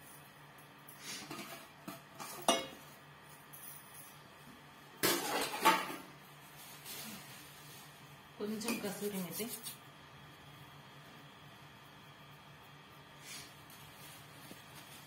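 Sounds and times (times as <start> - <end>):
metal kitchenware clinking: 2.2 - 2.8, 5.0 - 6.1.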